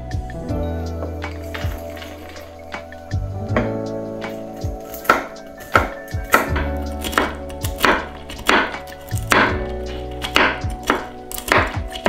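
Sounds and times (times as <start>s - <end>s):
knife chopping on wooden board: 5.0s - 9.6s, 10.2s - 12.0s.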